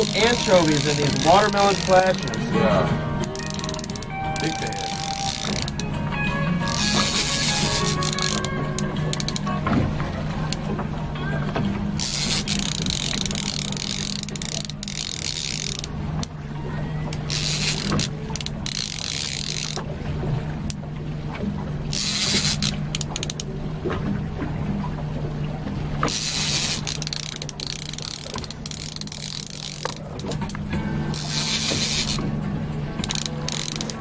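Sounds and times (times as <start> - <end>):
fishing reel whirring and clicking: 0.0 - 2.5, 3.2 - 5.9, 6.6 - 9.6, 11.9 - 16.4, 17.1 - 19.9, 21.9 - 23.5, 26.0 - 32.3, 33.0 - 34.0
boat engine hum: 0.0 - 34.0.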